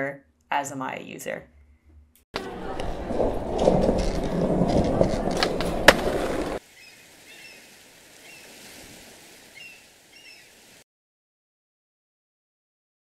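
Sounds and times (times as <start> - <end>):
skateboard clacks: 2.4 - 6.6
skateboard rolling: 2.4 - 6.6
light hiss: 6.6 - 10.8.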